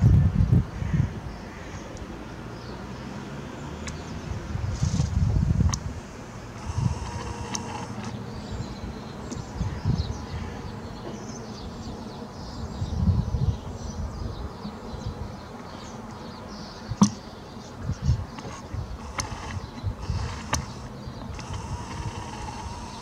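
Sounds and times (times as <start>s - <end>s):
sharp click: 5.7s - 5.9s, 17.0s - 17.2s, 18.4s - 22.2s.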